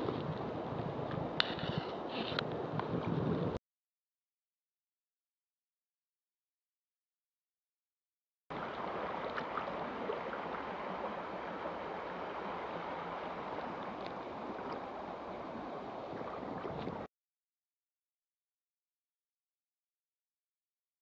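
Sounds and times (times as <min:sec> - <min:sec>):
river rushing over rocks: 0:08.6 - 0:16.1.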